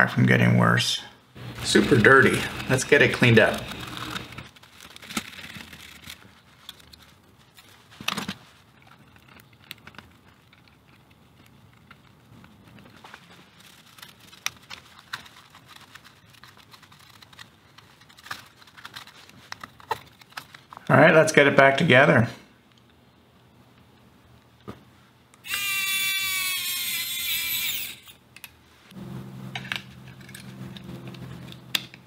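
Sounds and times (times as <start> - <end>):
paper towel rustling: 1.4 - 8.8, 12.8 - 20.8.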